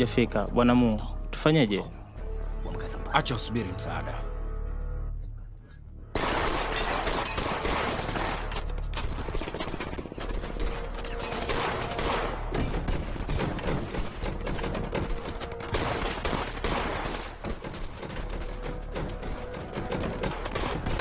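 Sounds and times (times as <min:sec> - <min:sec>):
rapid gunfire: 0:06.2 - 0:21.0.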